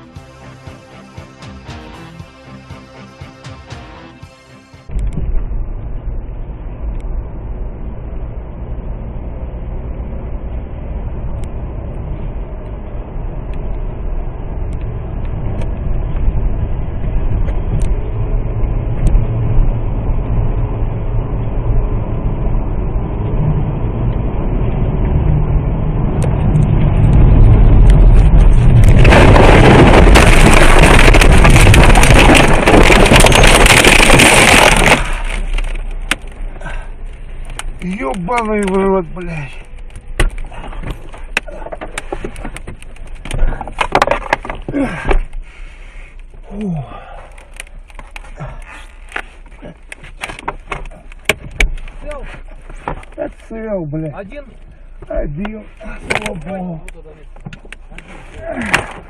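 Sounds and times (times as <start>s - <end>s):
car engine and tyre rumble: 4.0s - 59.0s
car crashing and scraping: 27.4s - 39.0s, 39.8s - 46.2s, 57.3s - 59.0s.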